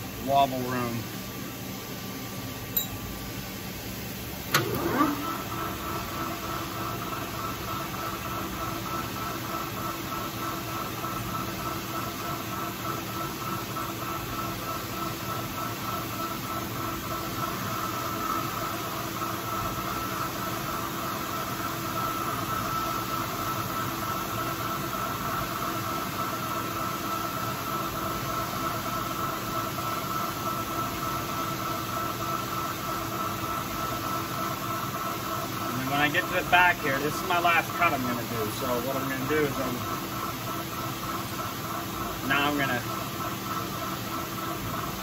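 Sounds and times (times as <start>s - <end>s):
lathe whining: 4.5s - 8.3s, 34.8s - 45.0s.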